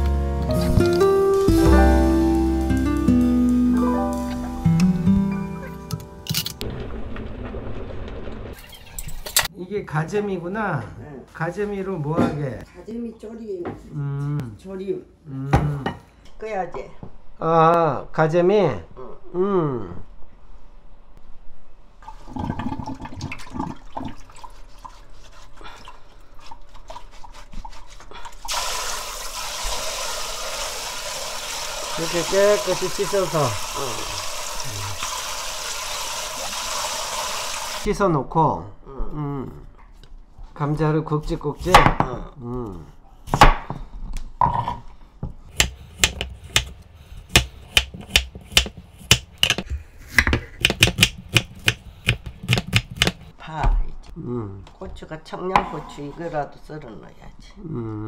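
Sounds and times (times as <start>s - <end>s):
water splashes and drips: 28.2s - 37.9s
tap water running into pot: 28.4s - 37.8s
knife knocking on wooden board: 45.5s - 53.3s.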